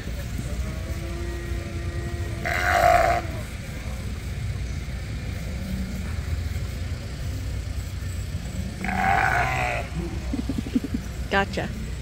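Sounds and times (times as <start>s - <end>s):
sheep bleating: 0.6s - 3.5s, 8.7s - 10.0s.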